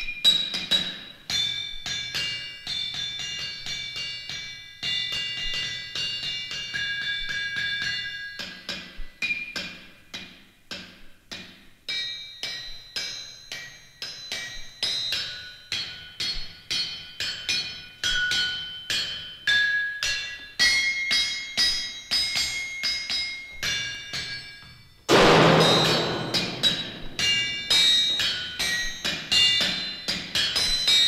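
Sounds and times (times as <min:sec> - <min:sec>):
loud noisy crash: 0:25.1 - 0:27.0
hammers striking anvils: 0:25.1 - 0:31.0.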